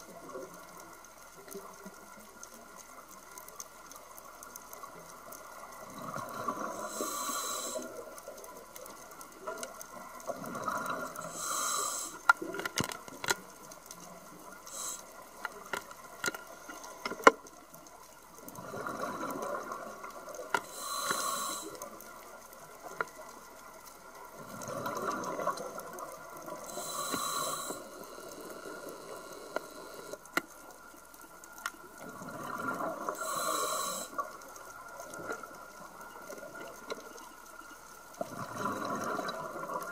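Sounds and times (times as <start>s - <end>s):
regulator breathing hiss: 6.6s - 8.0s, 11.2s - 12.3s, 14.6s - 15.3s, 20.6s - 21.9s, 26.6s - 30.3s, 33.2s - 34.2s.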